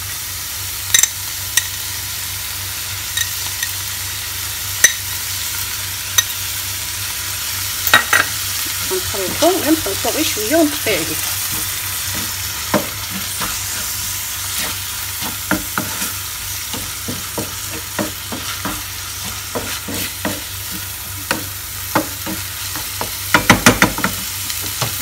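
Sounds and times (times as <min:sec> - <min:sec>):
frying sizzle: 0:00.0 - 0:25.0
spatula scraping frying pan: 0:08.1 - 0:22.9
spatula knocking against pan: 0:15.2 - 0:16.1, 0:16.7 - 0:25.0.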